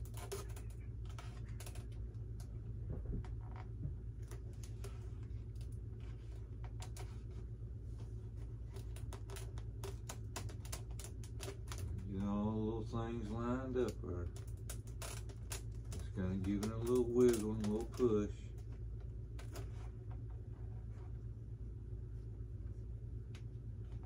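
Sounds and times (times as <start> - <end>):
steady low hum: 0.0 - 24.0.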